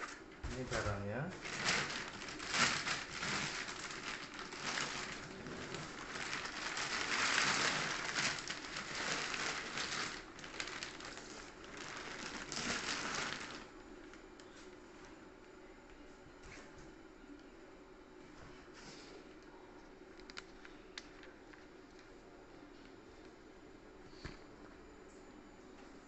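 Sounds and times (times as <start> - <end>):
plastic bag crinkling: 0.5 - 14.1, 20.1 - 22.0.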